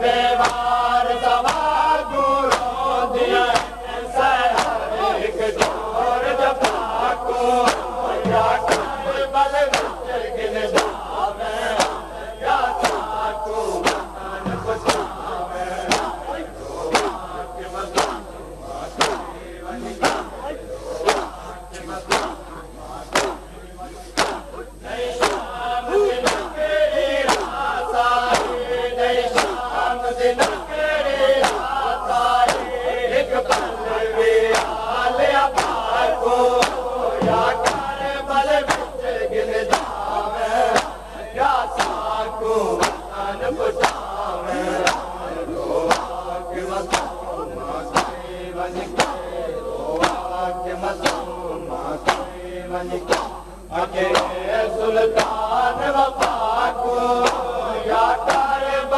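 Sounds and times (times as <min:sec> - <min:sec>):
men chanting a lament: 0:00.0 - 0:58.9
chest-beating slaps: 0:00.4 - 0:00.8, 0:01.4 - 0:01.7, 0:02.4 - 0:02.7, 0:03.3 - 0:03.8, 0:04.5 - 0:05.9, 0:06.6 - 0:06.9, 0:07.6 - 0:09.0, 0:09.6 - 0:10.0, 0:10.6 - 0:26.6, 0:27.2 - 0:27.6, 0:28.3 - 0:28.6, 0:29.2 - 0:29.7, 0:30.3 - 0:30.7, 0:31.4 - 0:32.8, 0:33.4 - 0:33.8, 0:34.5 - 0:34.8, 0:35.5 - 0:35.9, 0:36.6 - 0:39.0, 0:39.6 - 0:41.0, 0:41.7 - 0:42.2, 0:42.8 - 0:44.2, 0:44.8 - 0:45.2, 0:45.8 - 0:46.2, 0:46.8 - 0:47.2, 0:47.9 - 0:48.2, 0:48.8 - 0:51.3, 0:52.0 - 0:53.5, 0:54.1 - 0:54.4, 0:55.1 - 0:55.5, 0:56.2 - 0:56.4, 0:57.2 - 0:57.6, 0:58.2 - 0:58.5.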